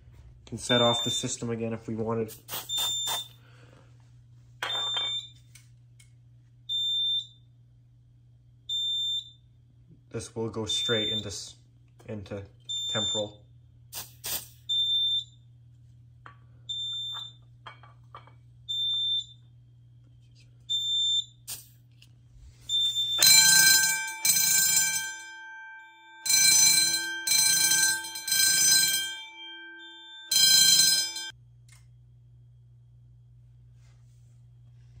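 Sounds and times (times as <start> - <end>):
fire alarm bursts: 0.6 - 1.5, 2.6 - 3.4, 6.7 - 7.4, 8.7 - 9.5, 10.7 - 11.5, 12.7 - 13.4, 14.7 - 15.4, 16.7 - 17.5, 18.7 - 19.4, 20.7 - 21.4, 22.6 - 31.4.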